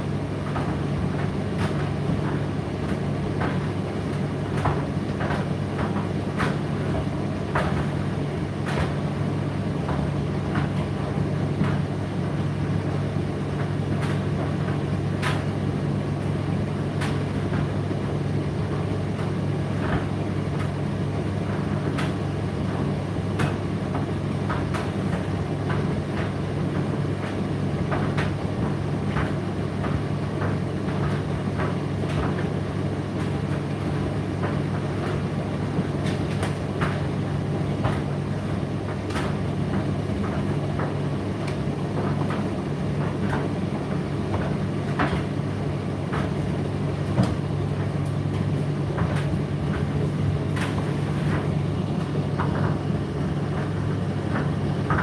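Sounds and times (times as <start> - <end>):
tumble dryer motor hum: 0.0 - 55.0.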